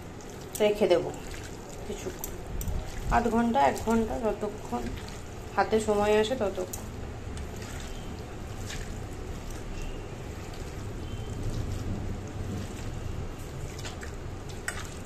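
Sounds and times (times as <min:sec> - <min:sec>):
steady low rumble: 0:00.0 - 0:15.0
wet squelches of raw chicken: 0:00.0 - 0:15.0.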